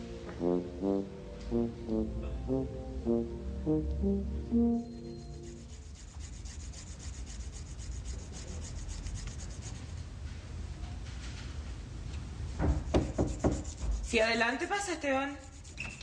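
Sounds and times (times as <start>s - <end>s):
brass music held notes: 0.0s - 5.7s
rhythmic rubbing strokes: 0.4s - 10.0s, 12.8s - 16.0s.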